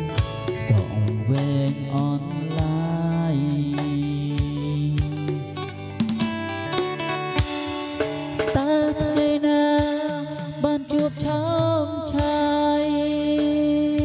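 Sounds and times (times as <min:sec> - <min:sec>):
low bass notes: 0:00.0 - 0:09.2
melody with bending notes: 0:00.0 - 0:14.0.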